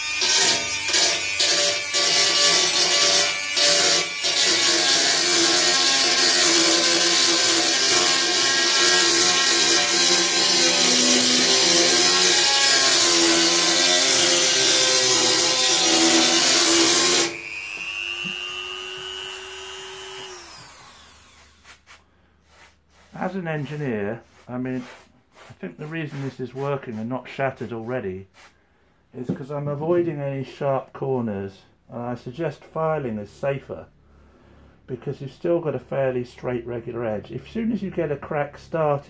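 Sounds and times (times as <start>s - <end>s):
rotary tool motor whine: 17.2s - 21.6s.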